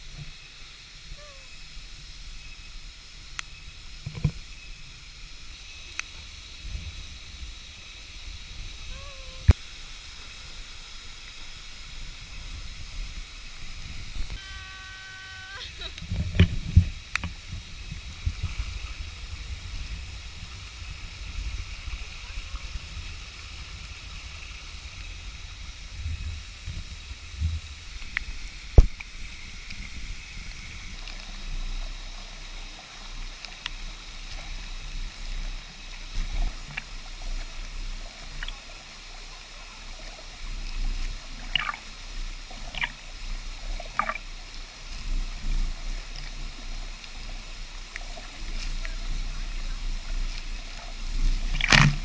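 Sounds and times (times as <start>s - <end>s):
waterfall rushing into pool: 0.0s - 52.0s
water splashing: 27.6s - 52.0s.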